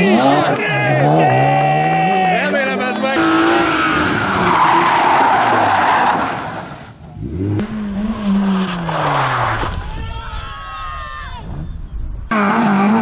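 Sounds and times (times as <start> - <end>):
tyres squealing: 0.0 - 6.8
rally car engine: 0.0 - 10.0, 12.3 - 13.0.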